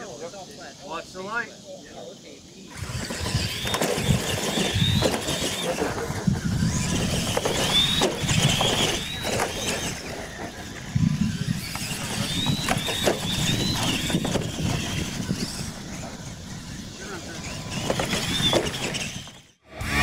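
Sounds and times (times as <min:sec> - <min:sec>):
rc truck motors whining: 0:02.0 - 0:20.0
trucks thumping over dirt: 0:02.8 - 0:16.3, 0:17.4 - 0:19.5.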